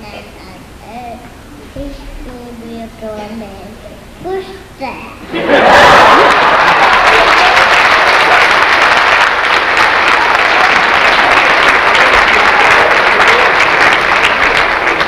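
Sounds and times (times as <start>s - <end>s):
congregation clapping: 5.6s - 15.0s.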